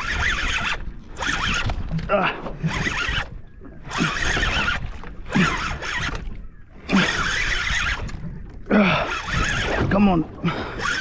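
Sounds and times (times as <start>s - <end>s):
fishing reel winding: 0.0s - 1.7s, 3.9s - 6.3s, 6.9s - 8.2s, 9.0s - 9.9s, 10.7s - 11.0s.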